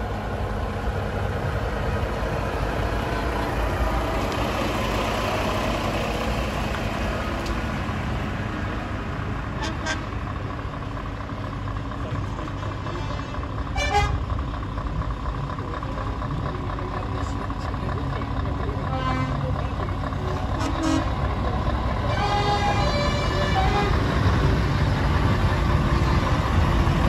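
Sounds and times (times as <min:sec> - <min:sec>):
truck diesel engines: 0:00.0 - 0:27.0
truck horn: 0:09.6 - 0:10.2, 0:12.8 - 0:14.3, 0:18.8 - 0:19.6, 0:20.4 - 0:21.3, 0:22.0 - 0:24.3.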